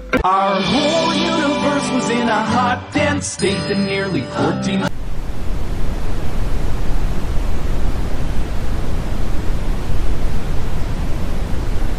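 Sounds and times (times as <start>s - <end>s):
loud bassy static noise: 4.7s - 11.9s.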